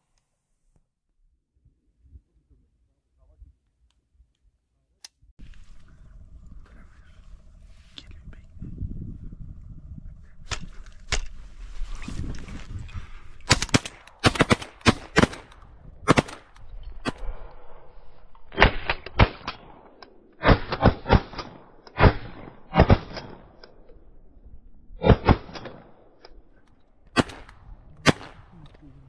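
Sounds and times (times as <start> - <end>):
shotgun blasts: 13.4 - 17.3, 18.5 - 23.6, 25.0 - 26.0, 27.1 - 28.6.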